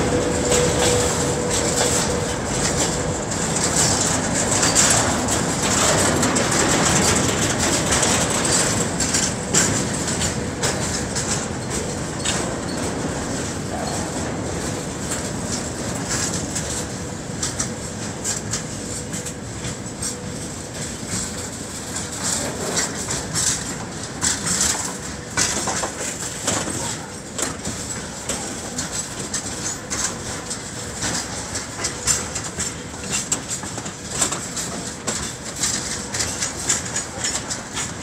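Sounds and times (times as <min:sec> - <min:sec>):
train wheels rumbling on rails: 0:00.0 - 0:38.0
sharp clicks and clanks: 0:20.8 - 0:38.0.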